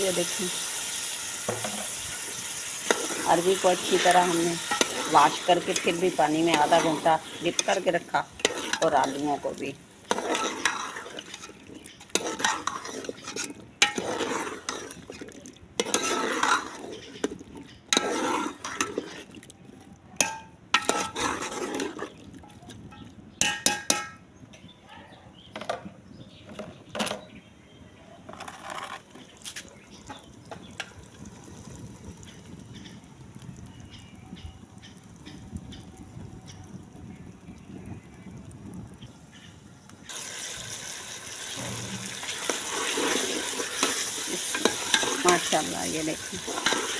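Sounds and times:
metal ladle scraping a pot: 0:00.1 - 0:19.5, 0:20.2 - 0:24.2, 0:41.4 - 0:46.9.

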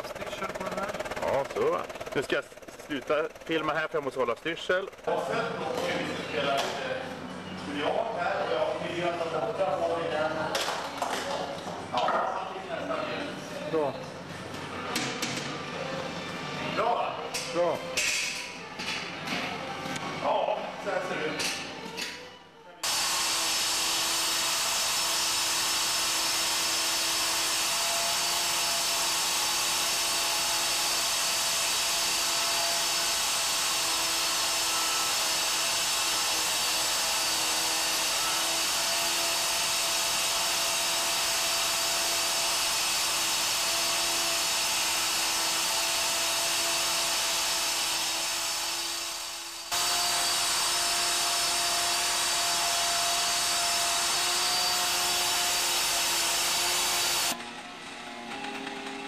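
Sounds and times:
stone grinder whining: 0:00.0 - 0:09.2, 0:22.8 - 0:59.0.

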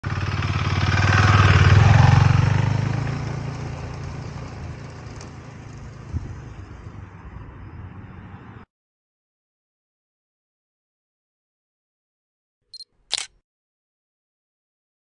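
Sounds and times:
motorcycle engine pulling away: 0:00.0 - 0:07.2.

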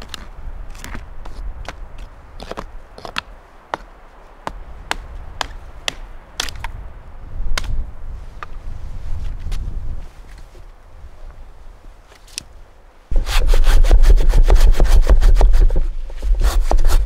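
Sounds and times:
hatchet chopping dry branches: 0:04.5 - 0:06.8, 0:07.5 - 0:07.8, 0:13.2 - 0:17.0.

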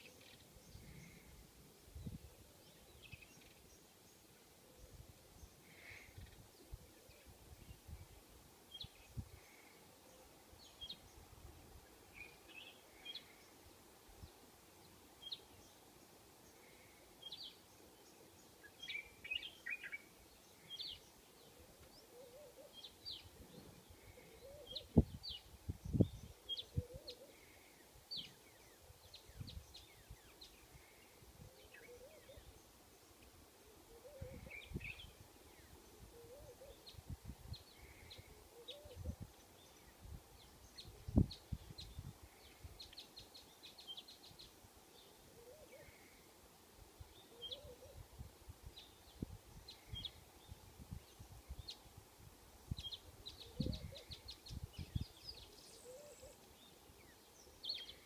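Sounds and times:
birds chirping: 0:47.1 - 0:48.0, 0:52.8 - 0:58.0.

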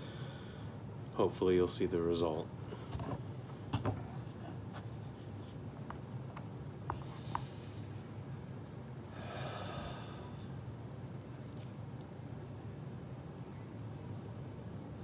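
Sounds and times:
man breathing out through nose: 0:09.1 - 0:10.5.

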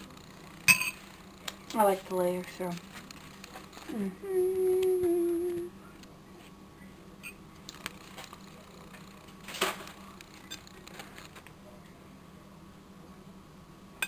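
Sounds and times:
dishware clatter: 0:00.7 - 0:01.0
person humming: 0:03.8 - 0:05.8.

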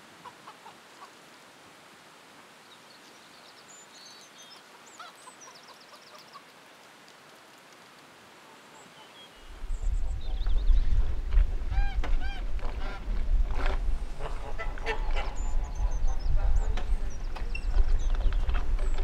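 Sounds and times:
low hiss: 0:00.0 - 0:19.0
bird chirps: 0:14.7 - 0:19.0.

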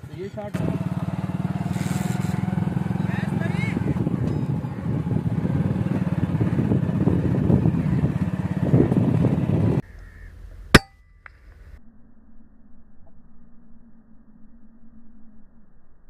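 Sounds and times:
pulsing engine rumble: 0:00.0 - 0:11.8.

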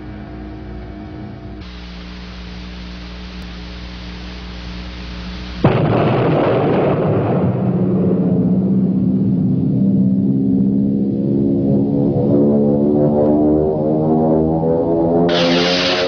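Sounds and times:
faint low hum: 0:00.0 - 0:05.9
hissing drone: 0:01.5 - 0:05.9, 0:15.3 - 0:16.0
loud crash ringing into low tone: 0:05.6 - 0:08.8.

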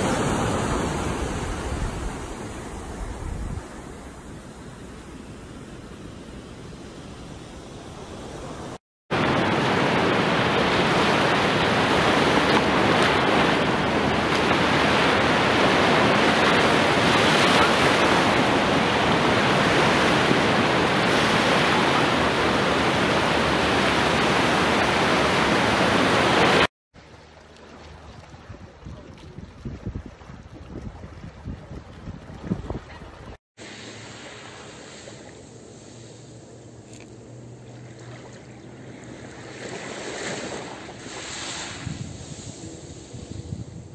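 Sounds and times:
waves breaking on a beach: 0:00.0 - 0:36.5, 0:37.6 - 0:43.9.

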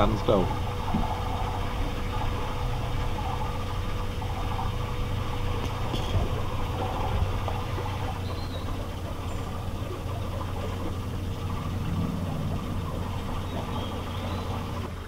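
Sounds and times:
boat motor hum and rumble: 0:00.0 - 0:15.0
faint bird chirps: 0:08.2 - 0:09.6, 0:13.4 - 0:14.8.

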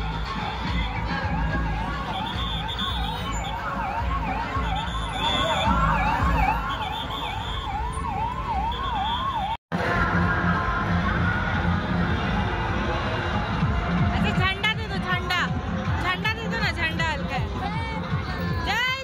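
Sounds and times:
ambulance siren wailing: 0:00.0 - 0:13.4
street and crowd rumble: 0:00.0 - 0:19.0.

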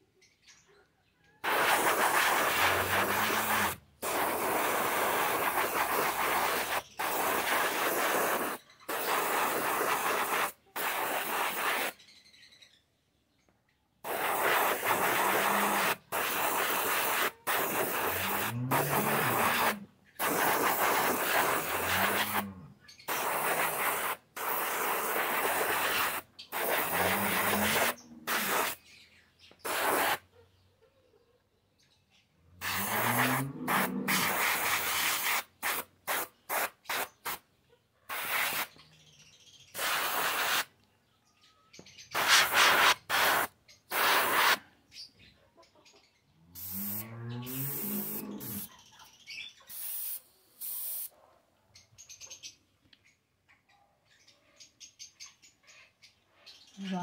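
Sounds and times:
spray gun hissing: 0:01.4 - 0:12.0, 0:14.1 - 0:22.5, 0:23.1 - 0:28.8, 0:29.7 - 0:30.2, 0:32.6 - 0:37.4, 0:38.1 - 0:38.8, 0:39.8 - 0:40.7, 0:42.2 - 0:44.6, 0:46.6 - 0:48.7.

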